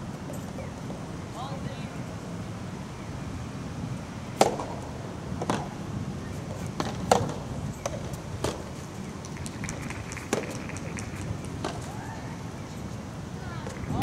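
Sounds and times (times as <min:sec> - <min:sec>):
rackets hitting tennis ball: 0:04.4 - 0:04.8, 0:06.8 - 0:08.6, 0:09.7 - 0:12.0.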